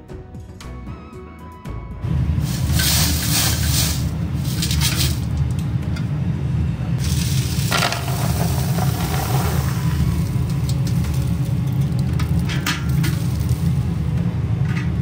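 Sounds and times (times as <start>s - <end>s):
steady low rumble: 2.0s - 15.0s
granules pouring onto sheet: 2.5s - 5.3s, 7.0s - 11.4s
granules rattling in steel pot: 2.5s - 5.6s, 7.0s - 13.8s.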